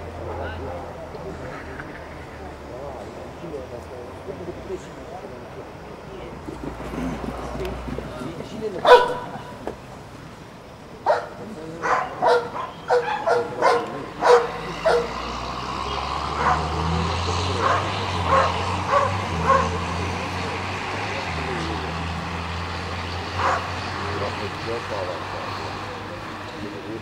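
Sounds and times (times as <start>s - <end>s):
low engine-like hum: 0.0s - 27.0s
dog barking: 8.8s - 9.5s, 11.0s - 15.2s, 16.3s - 16.8s, 17.6s - 19.8s, 23.3s - 23.8s.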